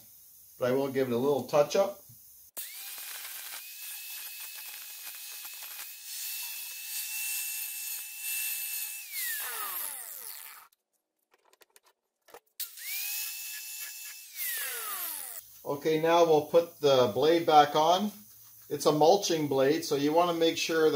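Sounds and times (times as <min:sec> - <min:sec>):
angle grinder grinding steel: 0:02.6 - 0:10.7, 0:12.6 - 0:15.4.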